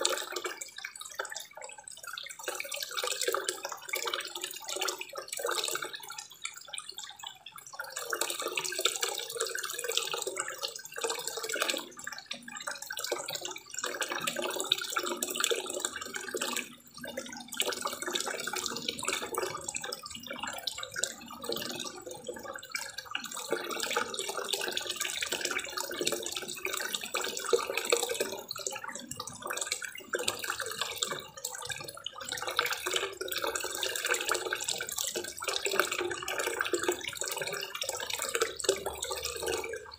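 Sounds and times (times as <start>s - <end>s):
waterfall pouring into pond: 0.0s - 7.0s, 7.6s - 17.0s, 17.6s - 39.9s.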